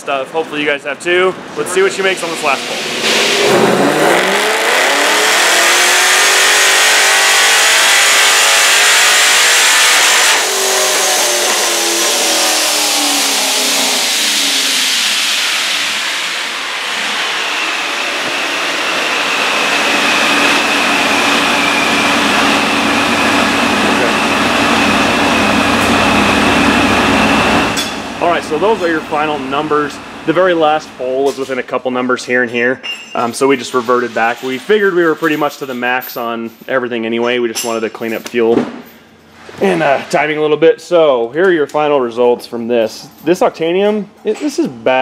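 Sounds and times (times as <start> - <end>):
supercharger whine: 1.8 - 32.4
car engine revving: 2.0 - 31.4
steady hum with high whine: 8.0 - 35.2.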